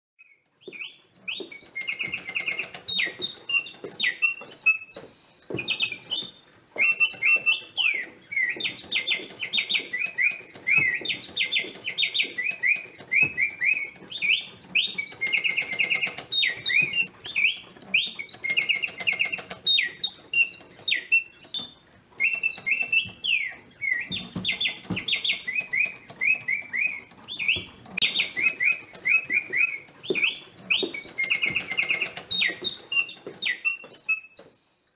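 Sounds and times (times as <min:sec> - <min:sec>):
mechanical birdsong whistle: 0:00.2 - 0:34.9.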